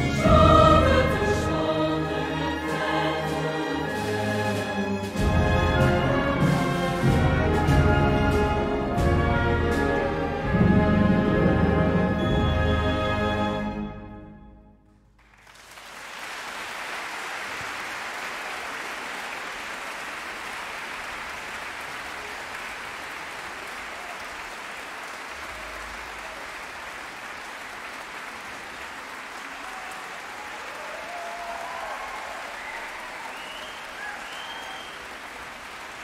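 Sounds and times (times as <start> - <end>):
audience applause: 15.2 - 36.0.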